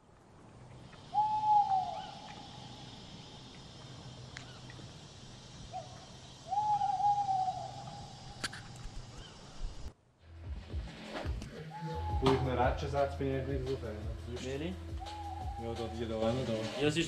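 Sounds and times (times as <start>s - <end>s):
faint steady hiss: 0.0s - 10.2s
owl hooting: 0.9s - 9.9s, 11.5s - 13.8s, 14.8s - 17.0s.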